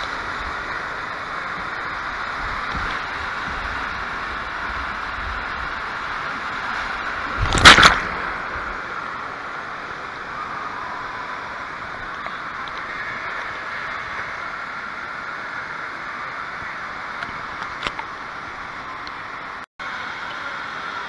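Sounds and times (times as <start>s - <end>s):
water rushing down slide: 0.0s - 21.0s
loud splash into pool: 7.4s - 8.9s.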